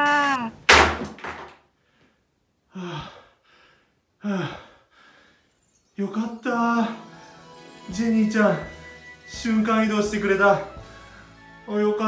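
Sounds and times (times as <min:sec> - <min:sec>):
man sighing: 0:02.7 - 0:05.3.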